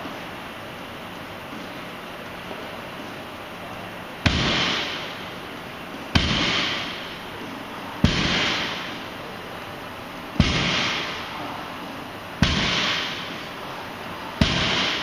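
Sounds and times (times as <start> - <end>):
sharp impacts with echo: 4.2 - 5.3, 6.1 - 7.2, 8.0 - 9.1, 10.3 - 11.4, 12.4 - 13.6, 14.3 - 15.0.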